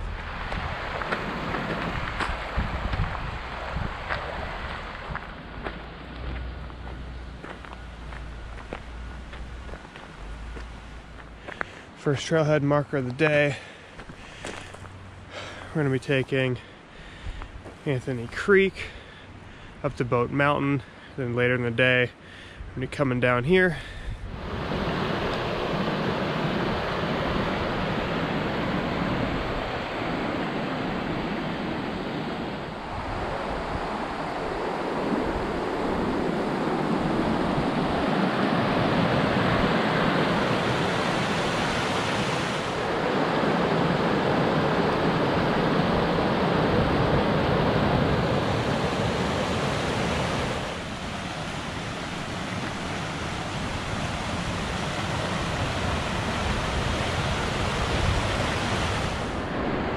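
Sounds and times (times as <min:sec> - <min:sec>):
creek rushing over rocks: 0:00.0 - 0:11.6.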